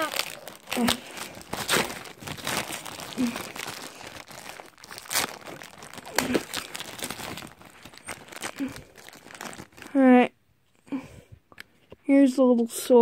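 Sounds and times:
cardboard and plastic crinkling: 0.0s - 10.1s.

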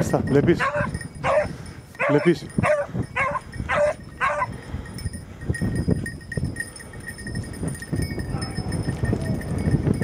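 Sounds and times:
dog barking: 0.6s - 4.5s.

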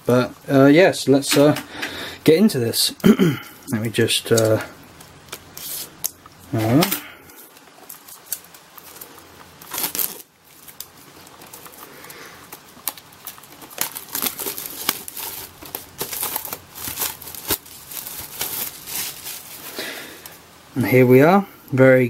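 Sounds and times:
plastic wrap crinkling: 2.7s - 20.4s.

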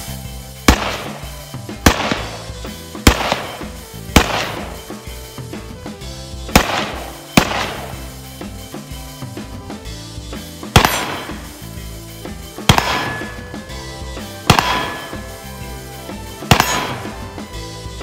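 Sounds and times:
background music with drums: 0.0s - 18.0s
rifle shots: 0.7s - 5.1s, 6.5s - 8.3s, 10.7s - 11.8s, 12.6s - 13.7s, 14.4s - 15.6s, 16.4s - 17.5s.

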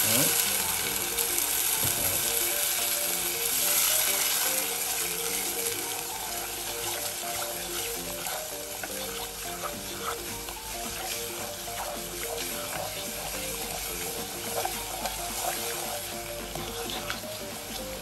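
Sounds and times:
background music: 0.0s - 18.0s
liquid sizzling in a saucepan: 0.0s - 18.0s.

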